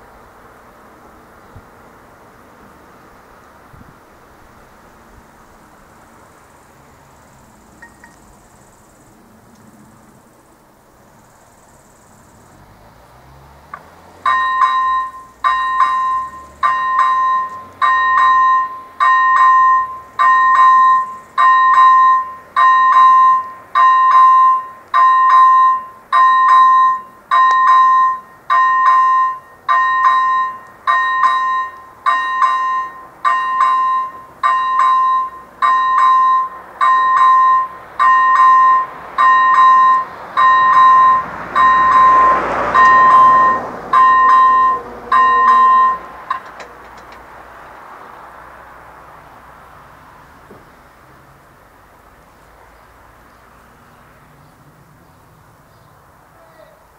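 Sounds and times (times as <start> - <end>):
two-tone electronic warning bell: 14.2 - 46.6.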